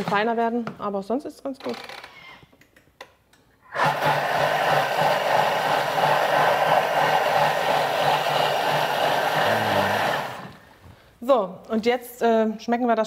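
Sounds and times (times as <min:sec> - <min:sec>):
blender motor running: 0:03.7 - 0:10.7.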